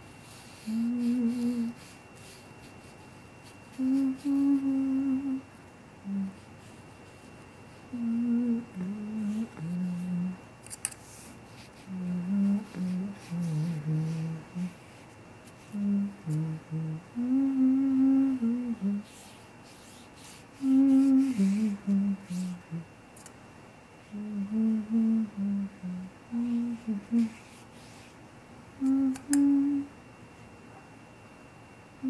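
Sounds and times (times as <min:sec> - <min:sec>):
person humming a tune: 0:00.4 - 0:06.7, 0:07.9 - 0:10.4, 0:11.8 - 0:14.8, 0:15.6 - 0:22.9, 0:24.0 - 0:27.6, 0:28.8 - 0:30.0.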